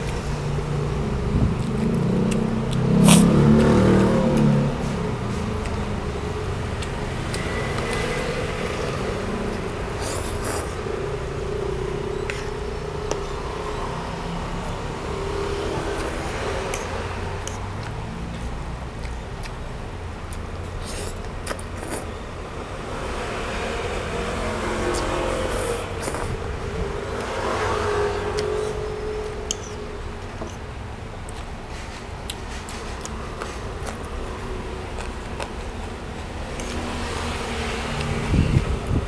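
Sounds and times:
vehicle engine rumbling: 0:00.0 - 0:39.0.

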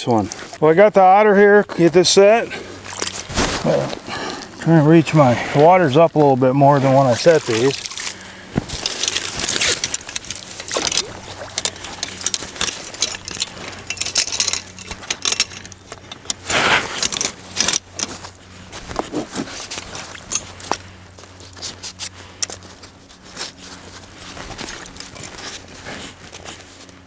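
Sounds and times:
water splashing: 0:07.1 - 0:08.2, 0:08.8 - 0:12.4
metal trap clinking and rattling: 0:08.7 - 0:18.3, 0:20.0 - 0:20.5.

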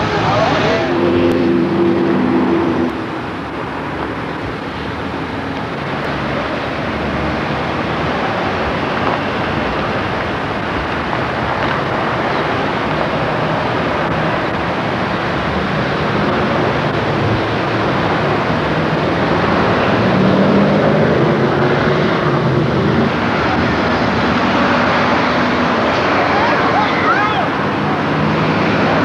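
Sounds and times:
low engine drone: 0:00.0 - 0:05.5
car engines running: 0:00.0 - 0:29.0
outdoor noise rushing: 0:00.0 - 0:29.0.

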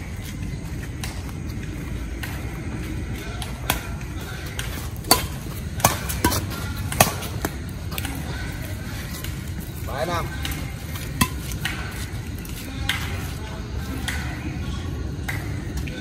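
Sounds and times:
rackets striking shuttlecock: 0:03.2 - 0:08.4, 0:10.3 - 0:13.2.

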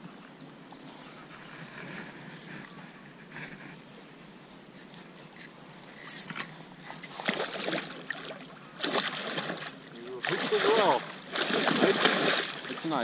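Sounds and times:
fish splashing in water: 0:07.1 - 0:12.9.

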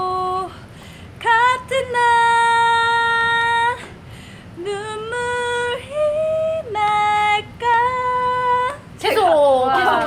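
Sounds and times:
woman singing unaccompanied: 0:00.0 - 0:04.0, 0:04.6 - 0:10.0
singer breathing: 0:00.5 - 0:01.2, 0:03.8 - 0:04.6.

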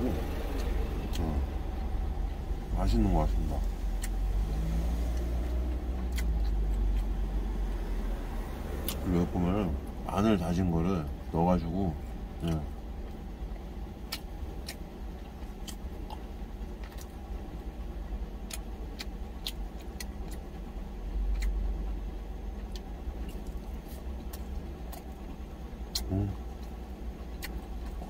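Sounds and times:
truck engine idling: 0:00.0 - 0:04.6
chewing: 0:03.9 - 0:07.3, 0:14.0 - 0:17.2, 0:18.4 - 0:20.6, 0:21.2 - 0:21.6, 0:22.5 - 0:28.0.

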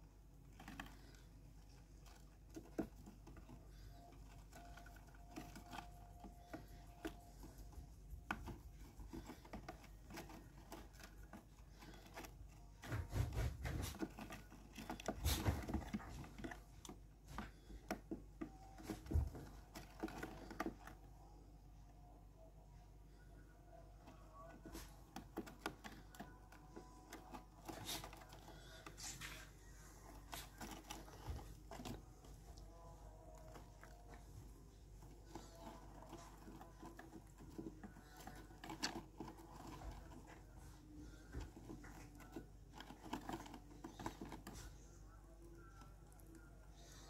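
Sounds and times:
birds scratching on wood shavings: 0:24.1 - 0:45.0.

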